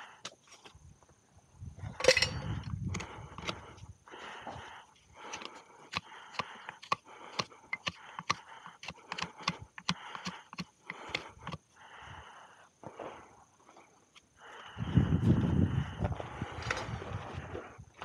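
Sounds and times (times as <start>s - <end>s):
sharp clicks: 5.3s - 11.6s.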